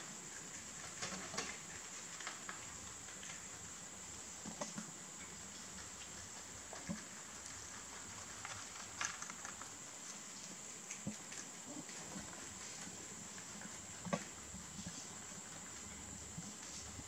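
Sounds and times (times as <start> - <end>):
rabbits chewing leaves: 0.0 - 17.0.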